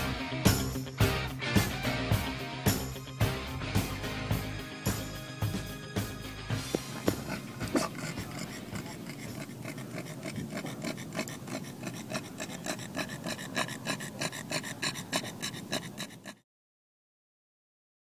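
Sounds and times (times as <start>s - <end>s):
dog panting: 6.6s - 16.4s.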